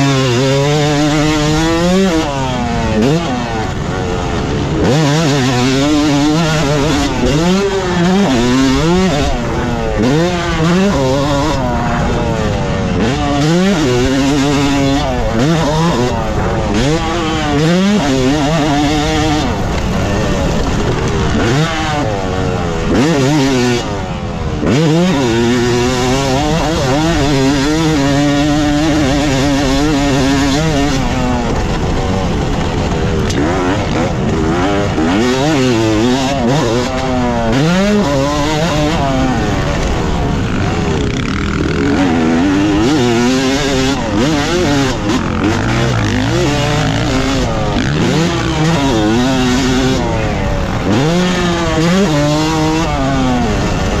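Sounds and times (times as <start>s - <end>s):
motocross engine revving: 0.0s - 54.0s.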